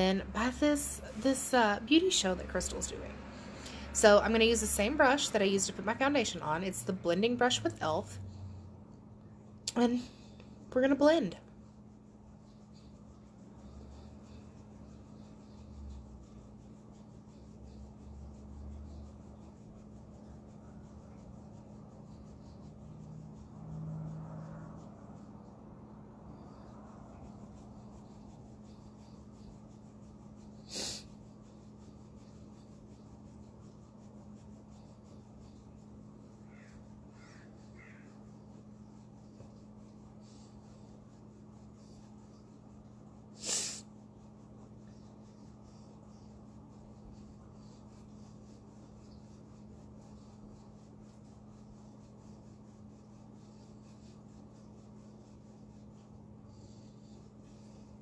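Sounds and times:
low hum: 0.0s - 30.6s
sniffs through the nose: 30.4s - 31.4s, 43.3s - 44.0s.

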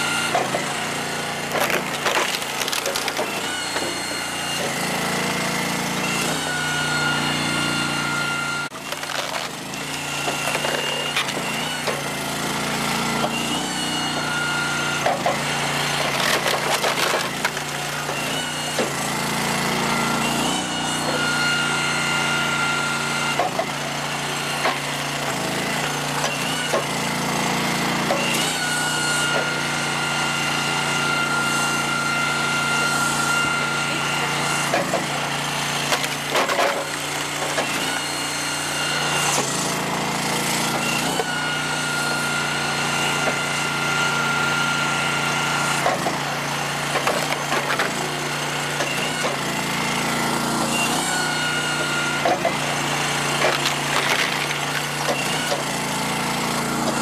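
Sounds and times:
hydraulic log splitter running: 0.0s - 57.0s
split wood clattering down: 1.5s - 3.4s, 16.0s - 17.8s, 53.4s - 55.6s
logs cracking apart: 1.5s - 3.5s, 8.7s - 11.4s, 16.0s - 18.2s, 53.4s - 55.5s.

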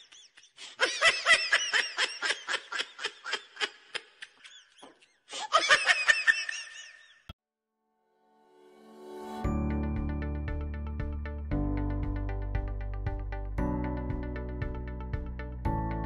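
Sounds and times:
high-pitched giggling laughter: 0.0s - 7.3s.

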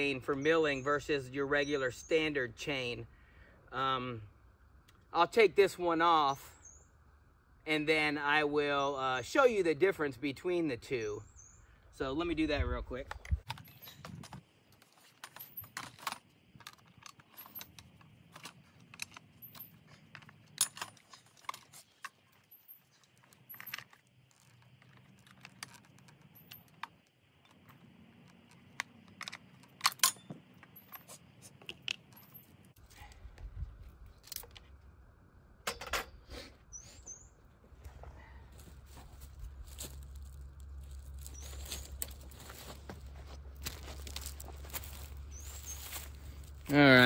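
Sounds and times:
chainsaw chain clinking and rattling: 13.5s - 31.2s, 39.6s - 46.8s.

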